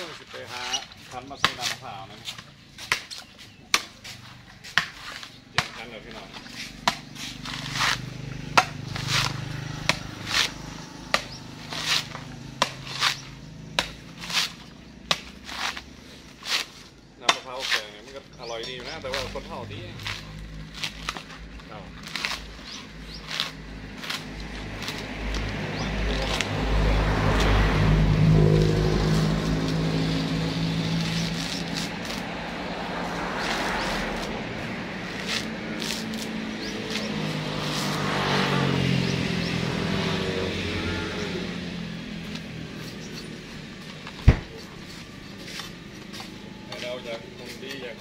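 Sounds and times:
coconut husk fibres ripping: 0.0 - 18.2, 18.8 - 38.8
vehicle engine running: 3.5 - 17.2, 18.1 - 48.0
husk tearing rustle: 19.1 - 27.7, 28.6 - 38.6.

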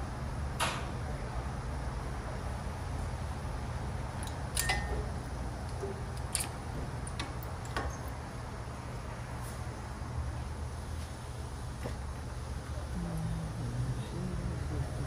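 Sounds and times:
steady low hum: 0.0 - 15.0
metal tools clinking: 4.2 - 8.2.

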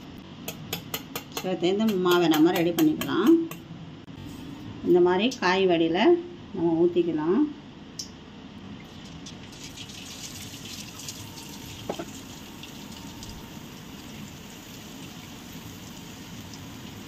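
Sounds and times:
batter sizzling in hot oil: 9.5 - 17.0.

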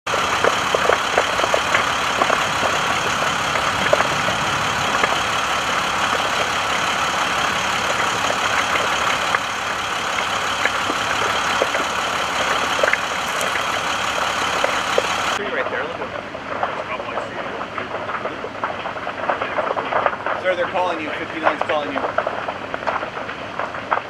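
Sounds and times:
steady rushing noise: 0.1 - 15.7
burning brush crackling: 0.1 - 24.0.

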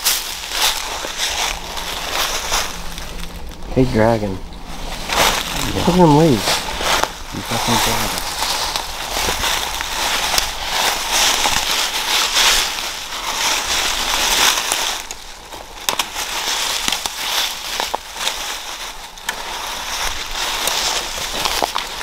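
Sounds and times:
footsteps crunching through dry leaves: 0.0 - 22.0.

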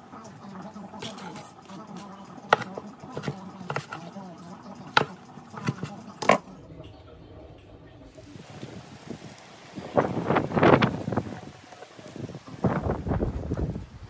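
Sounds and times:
knife chopping on plastic board: 2.5 - 4.1, 4.9 - 6.4.

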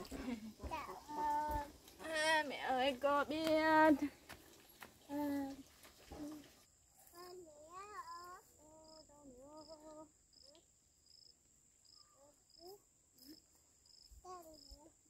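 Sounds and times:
insects chirping: 0.0 - 15.0
toddler babbling: 0.6 - 2.4, 5.1 - 5.6, 7.1 - 10.6, 12.2 - 13.4, 14.2 - 14.9.

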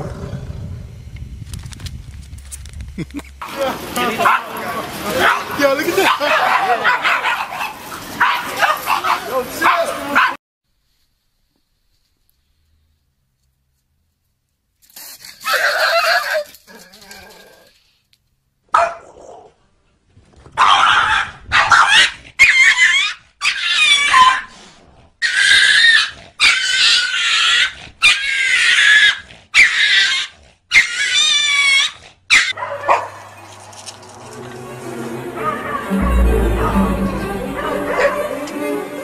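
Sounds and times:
dog yelping: 18.8 - 19.4, 20.6 - 24.5, 25.2 - 33.4.

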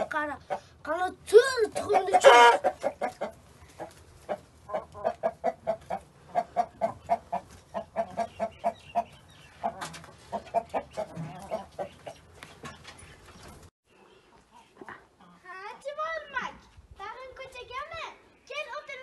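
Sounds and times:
hens clucking: 0.0 - 0.8, 1.6 - 15.5.

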